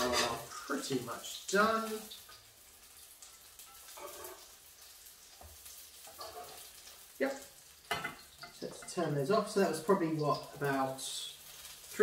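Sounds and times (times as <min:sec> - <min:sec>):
fritters sizzling in oil: 0:00.0 - 0:12.0.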